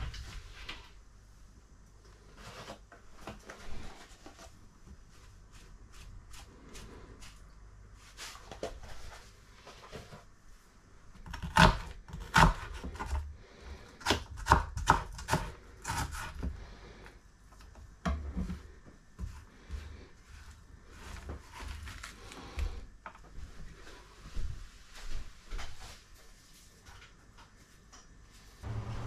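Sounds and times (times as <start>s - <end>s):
knife chopping on wooden board: 11.3s - 13.2s, 14.0s - 16.5s.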